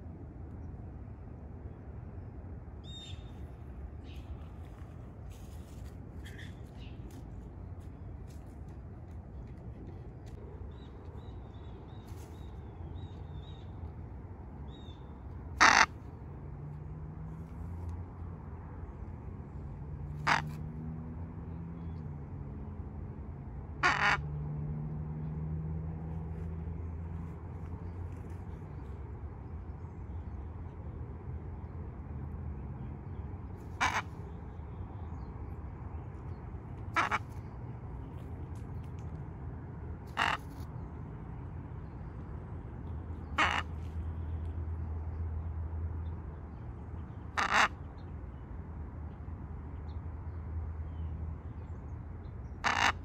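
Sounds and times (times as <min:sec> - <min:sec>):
macaw squawk: 0:15.6 - 0:16.0, 0:20.2 - 0:20.6, 0:23.8 - 0:24.2, 0:33.7 - 0:34.2, 0:36.9 - 0:37.4, 0:40.1 - 0:40.6, 0:43.2 - 0:43.9, 0:47.3 - 0:47.8, 0:52.6 - 0:53.0.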